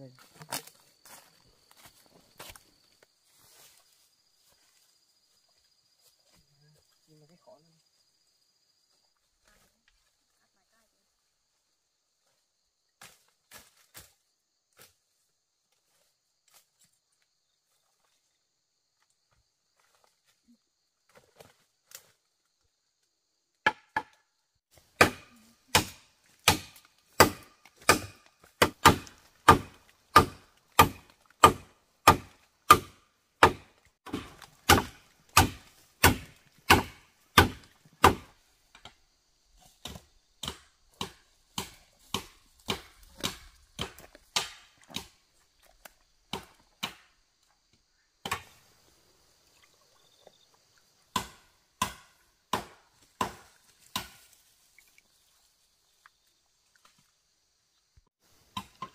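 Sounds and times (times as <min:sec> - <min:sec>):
wood being chopped: 0:23.6 - 0:38.9, 0:39.8 - 0:45.2, 0:46.3 - 0:47.1, 0:48.2 - 0:48.6, 0:51.1 - 0:54.3.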